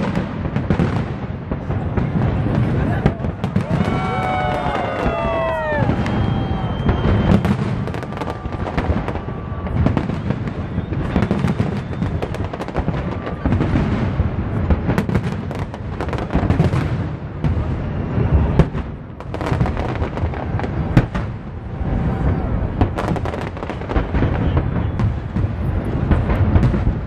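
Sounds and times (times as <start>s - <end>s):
fireworks bangs and crackles: 0.0s - 27.0s
low fireworks booms: 0.0s - 27.0s.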